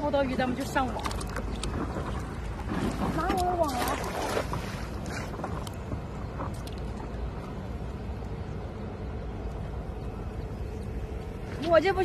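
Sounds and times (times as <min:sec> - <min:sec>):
steady low rumble: 0:00.0 - 0:12.0
net splashing into water: 0:01.1 - 0:05.7.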